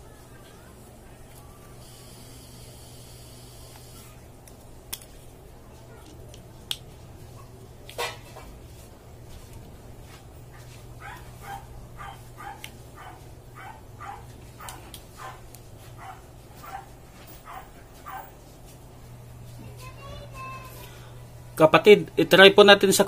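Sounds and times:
dog barking: 11.0 - 18.4.

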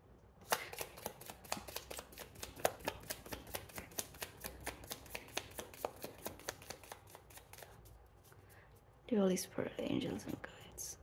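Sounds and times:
cards being shuffled: 0.4 - 8.5.

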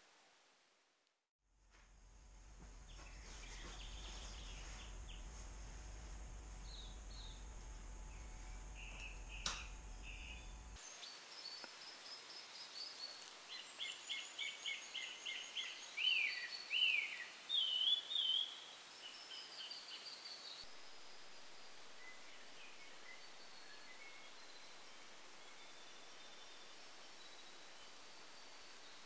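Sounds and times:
steady hiss: 0.0 - 1.0, 1.7 - 29.0
birds singing: 2.9 - 5.3, 6.6 - 7.5, 8.1 - 20.6.

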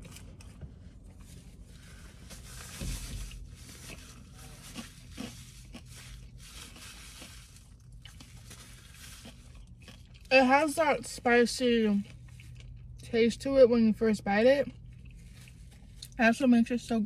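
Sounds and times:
person chewing crunchy food: 0.0 - 13.1, 14.6 - 16.2.

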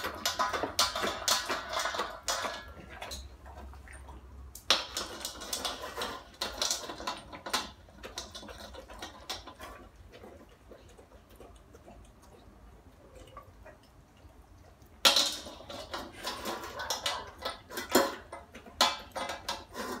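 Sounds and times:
kibble clattering in metal bowl: 0.0 - 11.0, 15.0 - 20.0
dog crunching kibble: 0.0 - 20.0.

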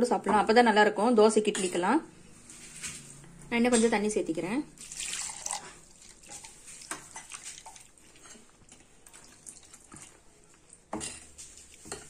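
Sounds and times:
water pouring into steel jar: 4.8 - 8.4.

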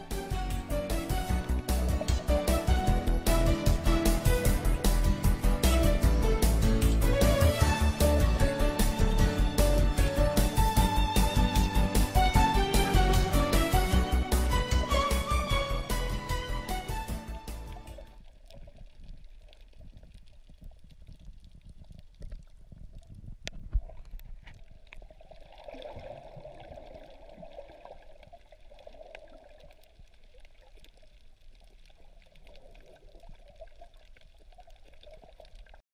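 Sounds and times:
water gurgling and trickling: 0.0 - 3.3, 12.7 - 35.8.

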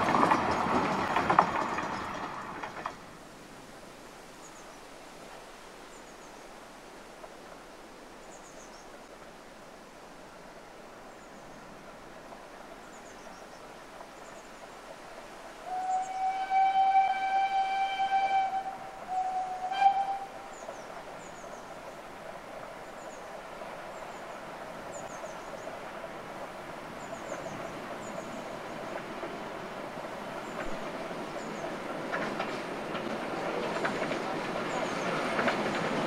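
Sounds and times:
steam locomotive whistle: 15.6 - 20.5.

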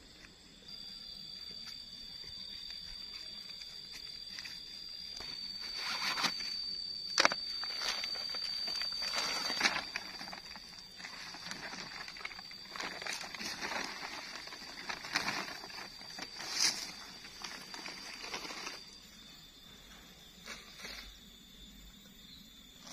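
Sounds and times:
high insect buzz: 0.0 - 22.9
foil mat crinkling: 7.7 - 18.8.

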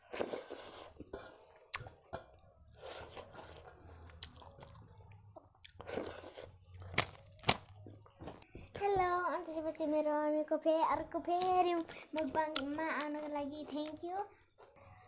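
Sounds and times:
person chewing food: 0.0 - 8.6.

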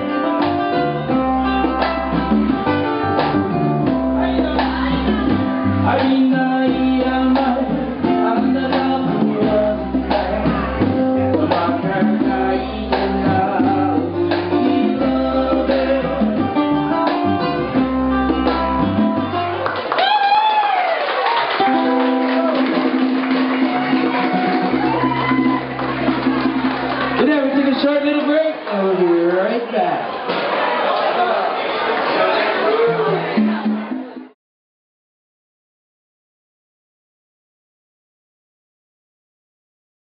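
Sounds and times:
electric bass line: 0.0 - 19.6, 21.6 - 27.6
drums: 0.0 - 20.4, 21.1 - 27.8, 32.8 - 34.4
congas: 0.0 - 28.4, 31.9 - 34.4
plucked ukulele: 21.6 - 27.2.

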